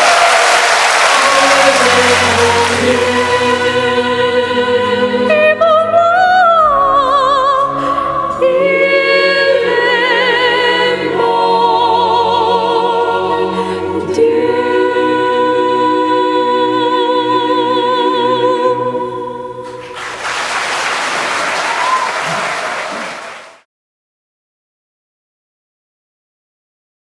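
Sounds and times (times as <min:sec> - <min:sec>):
string ensemble: 0:00.0 - 0:05.8
choir singing: 0:00.0 - 0:23.5
soprano singing with vibrato: 0:01.1 - 0:19.8.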